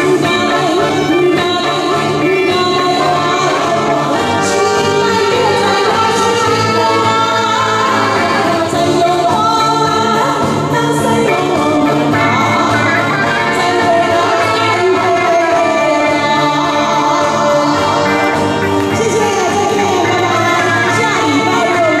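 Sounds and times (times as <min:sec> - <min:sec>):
live band music: 0:00.0 - 0:22.0
woman singing into microphone: 0:00.0 - 0:22.0.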